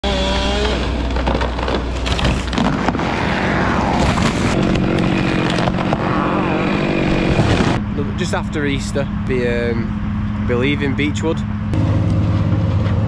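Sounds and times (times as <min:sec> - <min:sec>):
chainsaw running hard: 0:00.0 - 0:01.0, 0:04.6 - 0:07.8
sharp wood cracks: 0:00.2 - 0:03.3, 0:04.0 - 0:07.8.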